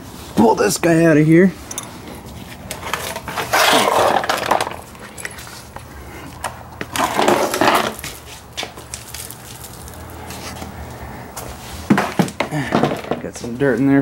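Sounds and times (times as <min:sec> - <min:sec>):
plastic scraping and rattling: 0:02.7 - 0:05.6, 0:06.8 - 0:08.2.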